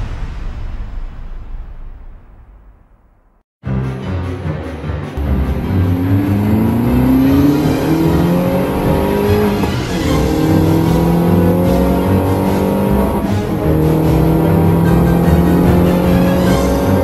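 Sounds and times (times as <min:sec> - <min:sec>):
music: 0:03.6 - 0:17.0
car engine accelerating: 0:05.2 - 0:17.0.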